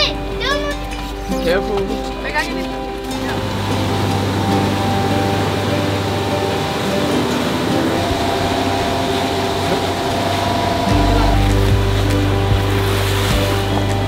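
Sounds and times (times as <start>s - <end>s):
background music chords: 0.0s - 14.0s
jet ski engine: 0.0s - 14.0s
water spray: 3.3s - 14.0s.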